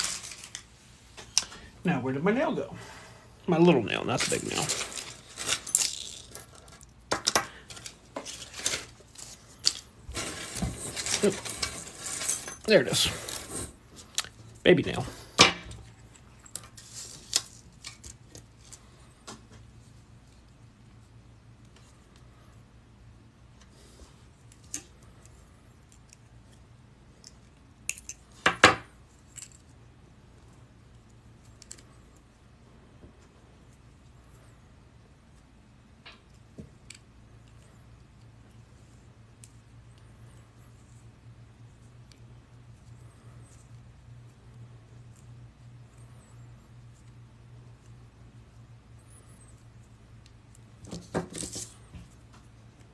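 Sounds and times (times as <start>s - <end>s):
small metal pieces clinking: 4.1s - 13.5s
shuffling rustle: 10.1s - 14.1s.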